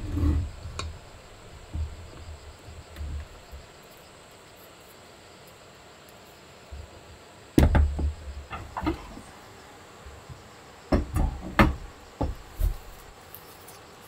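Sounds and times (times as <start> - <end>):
soft handling noise: 12.2 - 14.0.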